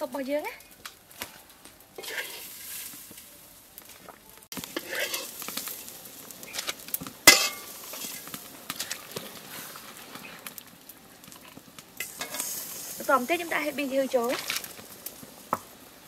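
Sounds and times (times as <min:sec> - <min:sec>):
sizzling hiss: 0:00.0 - 0:16.0
stirring and scraping in pot: 0:01.2 - 0:15.8
utensil clanking on pot: 0:06.6 - 0:09.2.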